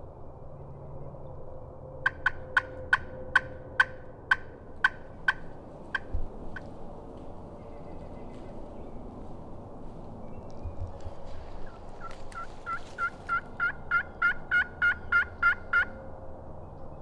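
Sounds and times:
friction turkey call notes: 2.0s - 6.7s, 12.0s - 15.9s.

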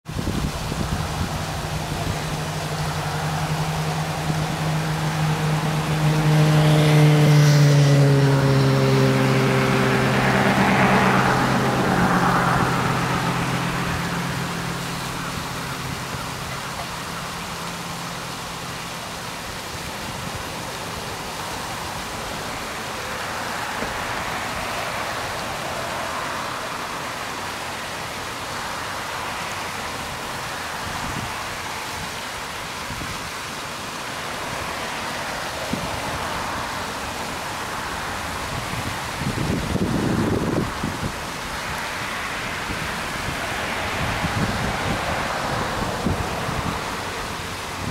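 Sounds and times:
waterfall: 0.0s - 47.9s
fountains splashing: 0.1s - 47.9s
vehicle driving past: 1.2s - 19.2s, 34.2s - 47.9s.

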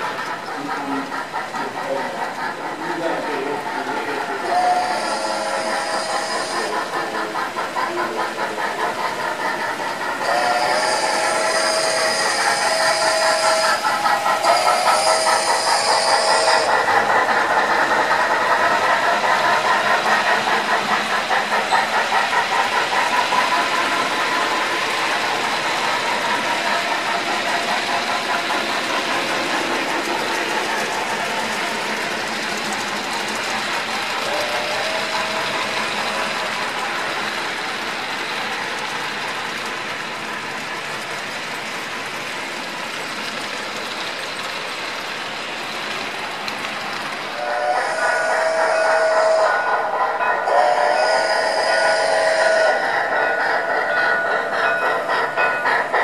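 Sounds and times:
model locomotive chuffing: 0.0s - 56.0s
model train wheels rolling: 0.0s - 56.0s
steam whistle: 4.4s - 6.8s, 10.2s - 16.9s, 47.4s - 53.0s.

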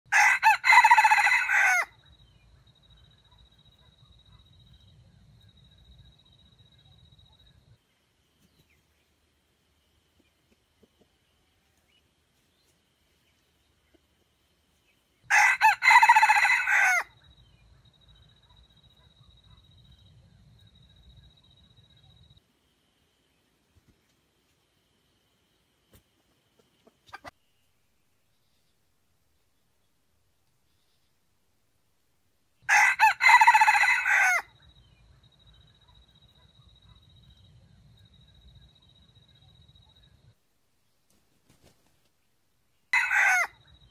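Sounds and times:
rooster crowing: 0.1s - 2.0s, 15.3s - 17.2s, 32.7s - 34.6s, 43.0s - 43.6s.

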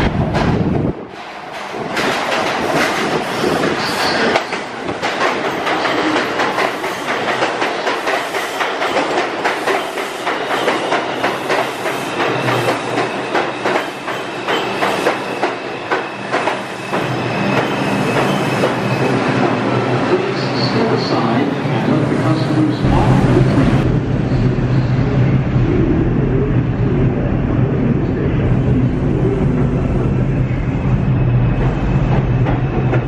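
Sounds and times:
train wheels clattering over rail joints: 1.5s - 18.8s
low hum: 22.8s - 31.6s.

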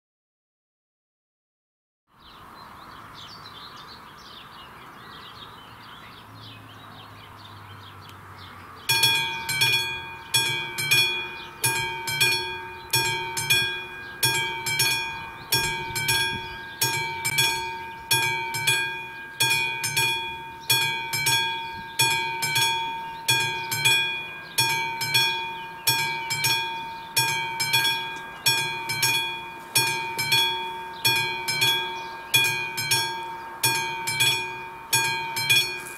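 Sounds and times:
birds chirping: 2.1s - 35.9s
level crossing warning bell: 8.9s - 35.9s.

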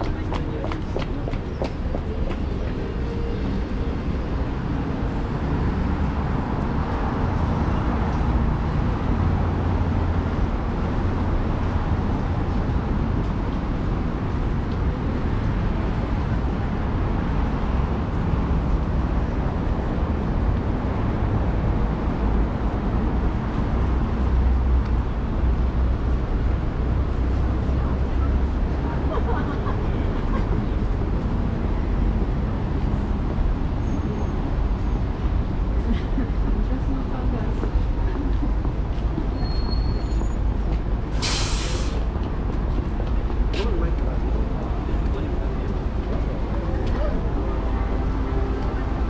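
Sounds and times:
city street traffic: 0.0s - 49.0s.

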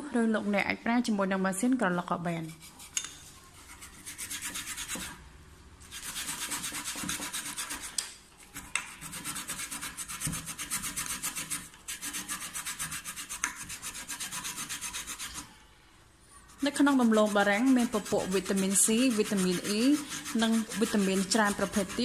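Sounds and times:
potato rasping on a metal grater: 8.6s - 15.5s, 16.4s - 22.0s.

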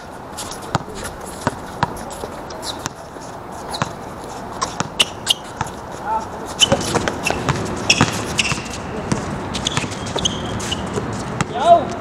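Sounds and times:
footsteps: 0.0s - 12.0s
shoe squeaks: 0.4s - 12.0s
basketball bouncing: 0.7s - 2.0s, 4.6s - 5.8s, 6.6s - 11.6s.

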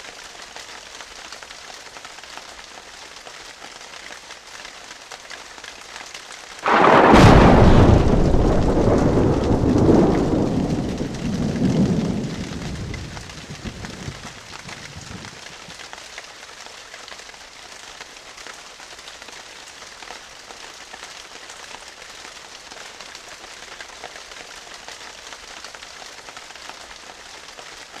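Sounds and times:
steady rain: 0.0s - 28.0s
thunderclap and rolling rumble: 6.6s - 15.7s.

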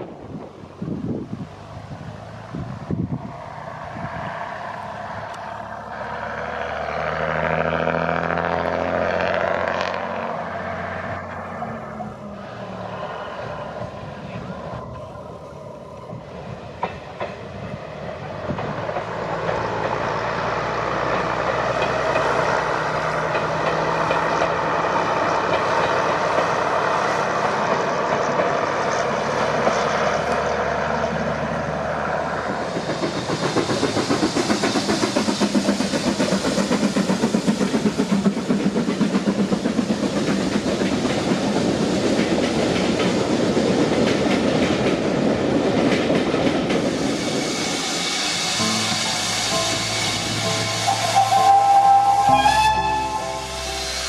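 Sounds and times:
train running hum: 0.0s - 54.0s
train wheels clickety-clack: 15.9s - 53.2s.

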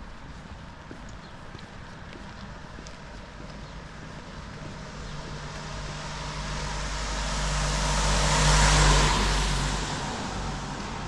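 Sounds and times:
vehicle driving past: 4.4s - 11.0s
tyres hissing on wet road: 4.7s - 11.0s.

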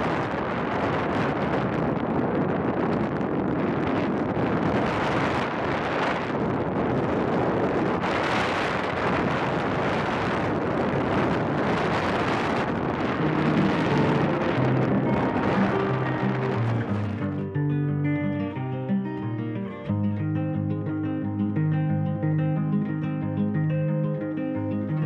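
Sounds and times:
wind rushing on microphone: 0.0s - 18.7s.

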